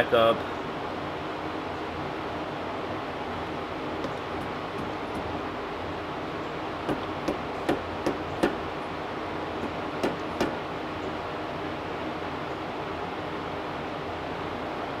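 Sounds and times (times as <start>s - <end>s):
wrench tapping metal: 6.9s - 8.6s, 9.6s - 10.6s.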